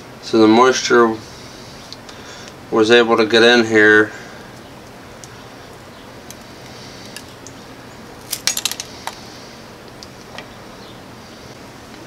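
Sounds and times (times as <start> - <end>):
small hard objects clicking: 8.2 - 9.2.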